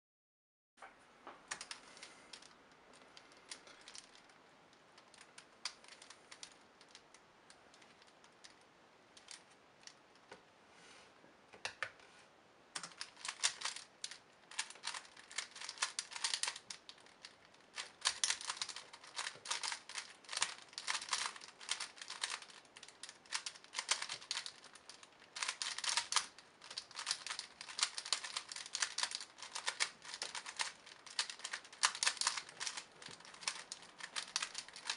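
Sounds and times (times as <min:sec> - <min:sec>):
plastic puzzle faces clicking: 0:01.5 - 0:10.3, 0:12.8 - 0:34.9
rapid clatter of puzzle turns: 0:01.6 - 0:04.4, 0:05.0 - 0:07.1, 0:12.8 - 0:34.9.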